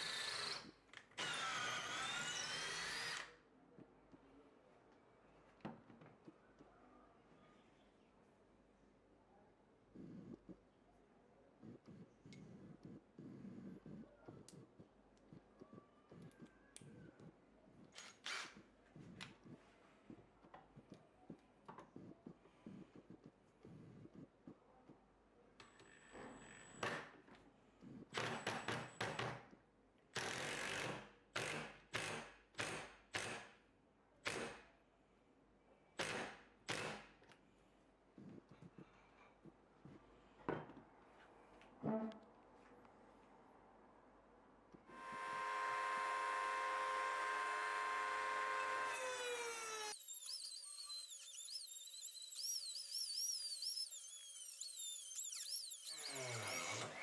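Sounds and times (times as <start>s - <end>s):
drill spinning a steel rod: 0.0s - 3.3s, 44.9s - 57.0s
rotary tool cutting metal: 0.0s - 3.3s, 46.6s - 57.0s.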